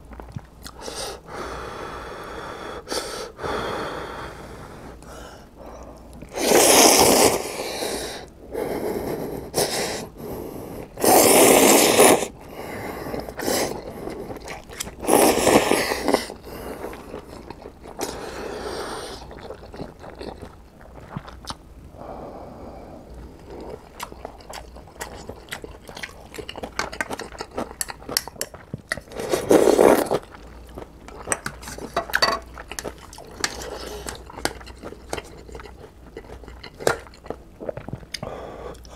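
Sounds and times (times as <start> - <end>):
wet chewing and mouth clicks: 0.0 - 0.8, 13.2 - 18.3, 19.1 - 21.7, 23.1 - 38.9
person slurping noodles: 6.3 - 8.3, 10.8 - 12.4, 13.0 - 20.5, 29.1 - 30.3.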